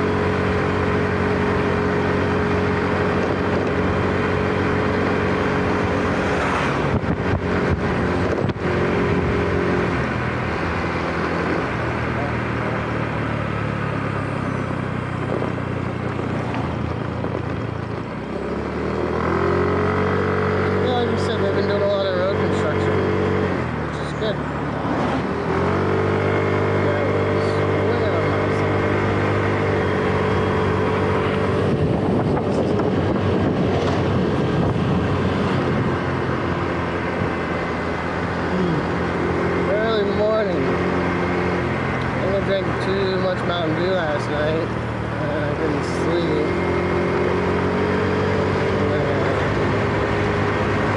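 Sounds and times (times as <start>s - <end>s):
scooter engine running: 0.0s - 50.9s
wind and road noise: 0.0s - 50.9s
wind rushing over microphone: 2.0s - 12.1s, 28.6s - 39.6s
motor scooter engine running: 25.4s - 47.4s.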